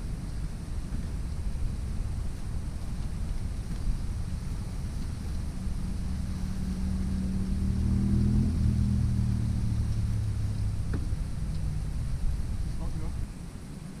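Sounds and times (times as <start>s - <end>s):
engine running steadily: 0.0s - 14.0s.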